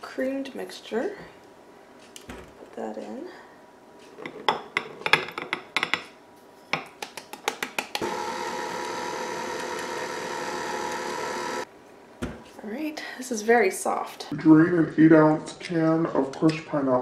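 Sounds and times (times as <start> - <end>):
stand mixer motor whine: 8.0 - 11.7.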